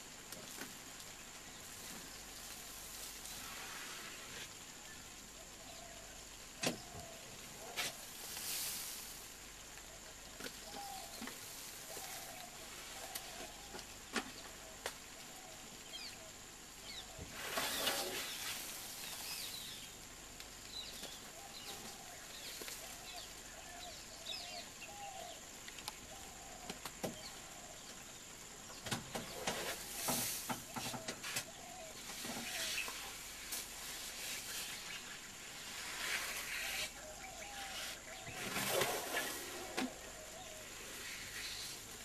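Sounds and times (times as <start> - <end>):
steady hiss: 0.0 - 42.0
birds chirping: 0.5 - 42.0
elephant blowing dust from trunk: 17.3 - 19.6, 34.0 - 40.0.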